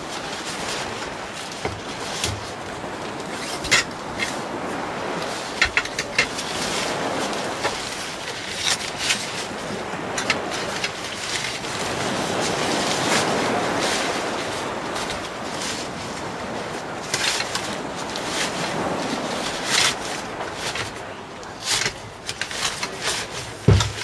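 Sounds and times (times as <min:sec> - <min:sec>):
poles clicking and tapping: 0:05.6 - 0:06.4.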